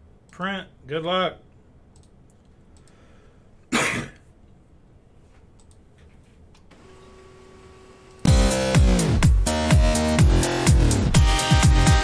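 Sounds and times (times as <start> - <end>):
computer mouse clicks: 1.9 - 3.0, 5.5 - 6.7
person coughing: 3.7 - 4.3.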